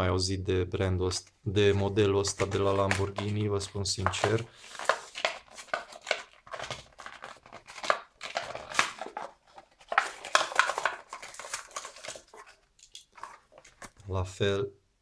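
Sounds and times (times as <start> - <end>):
plastic packaging crinkling: 2.2 - 14.1
cardboard rustling and tapping: 2.3 - 14.0.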